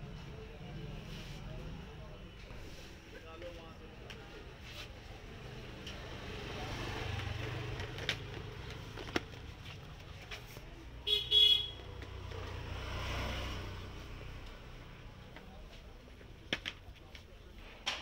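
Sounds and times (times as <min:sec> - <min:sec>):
road traffic passing: 0:00.0 - 0:16.5
vehicle horn honking: 0:11.0 - 0:11.8.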